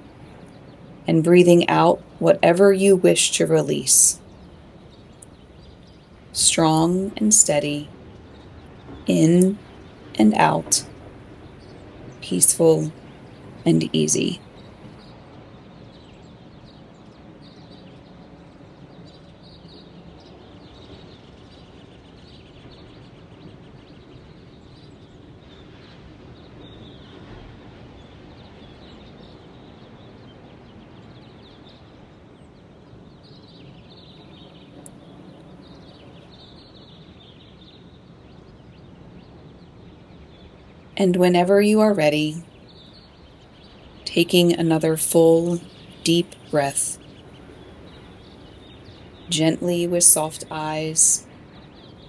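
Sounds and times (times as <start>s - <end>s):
steady background hiss: 0.0s - 52.0s.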